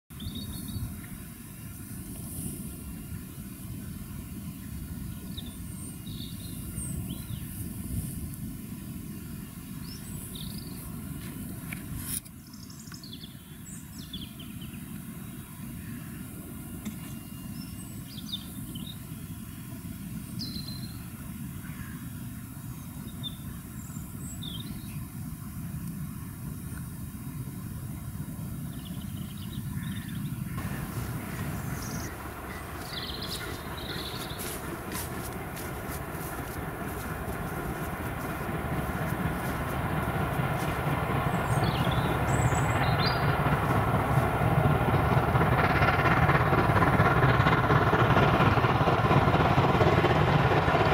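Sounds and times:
small birds chirping: 0.1 - 7.7, 9.8 - 10.9, 28.7 - 46.7
distant steam locomotive rumble: 0.1 - 50.9.

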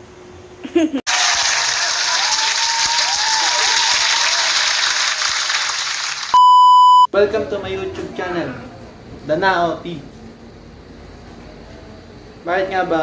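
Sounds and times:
applause and cheering: 1.1 - 6.4
loud steady beep: 6.4 - 7.1.

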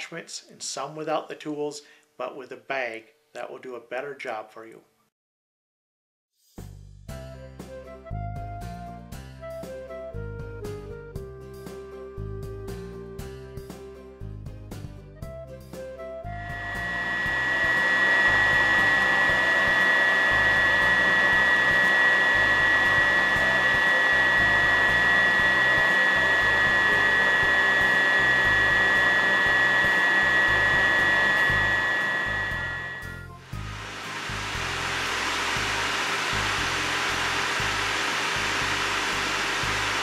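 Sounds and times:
vacuum cleaner running: 16.2 - 40.0.

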